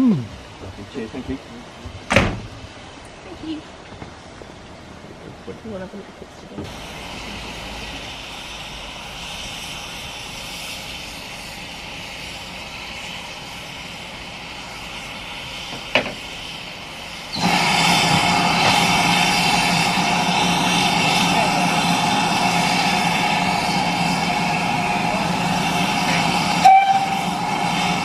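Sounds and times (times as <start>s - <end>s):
loud rush of escaping steam: 0.0s - 3.7s, 4.8s - 28.0s
steam hissing: 6.5s - 28.0s.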